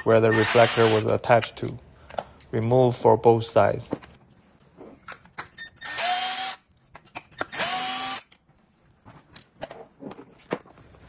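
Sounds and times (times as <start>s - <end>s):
power screwdriver whirring: 0.3s - 1.1s, 5.8s - 6.6s, 7.4s - 8.4s.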